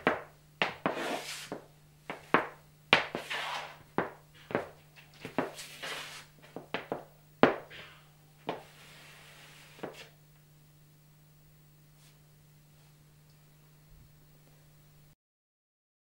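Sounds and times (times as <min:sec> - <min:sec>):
heeled shoes stamping on wood: 0:00.0 - 0:03.3, 0:03.9 - 0:05.6, 0:06.4 - 0:07.8
shoes brushing on floor: 0:00.0 - 0:10.2, 0:12.0 - 0:13.0.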